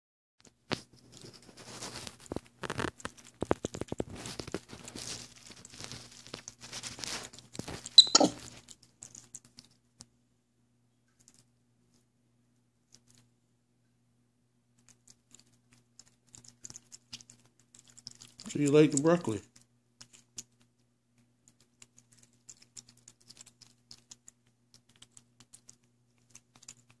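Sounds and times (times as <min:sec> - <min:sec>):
rustling handling noises: 0:00.4 - 0:10.1
monkey crunching and chewing: 0:00.8 - 0:10.1, 0:11.1 - 0:11.5, 0:14.7 - 0:27.0.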